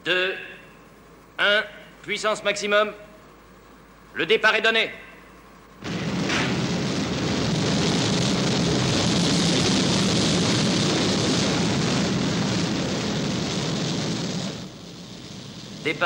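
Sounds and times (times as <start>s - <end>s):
rocket engines roaring: 5.7s - 16.0s.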